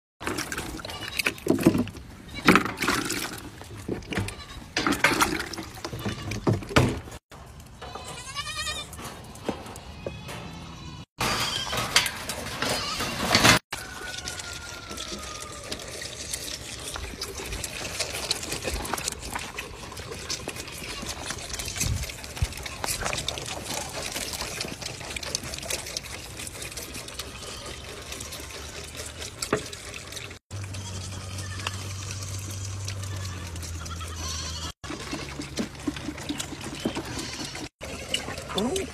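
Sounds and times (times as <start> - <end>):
handling knocks and bumps: 1.4 - 7.2
goat kids bleating: 4.2 - 4.7, 7.8 - 9.0, 12.6 - 13.2, 27.1 - 28.6, 30.6 - 34.8, 36.8 - 37.7
goat kids suckling: 13.9 - 38.9.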